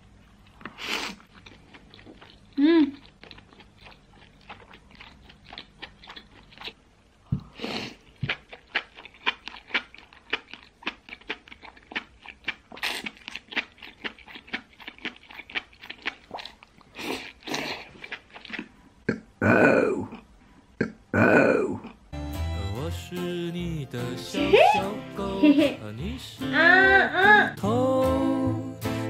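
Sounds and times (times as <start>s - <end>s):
wet chewing clicks: 0.4s - 6.8s, 8.0s - 19.2s
slurping: 11.3s - 18.8s.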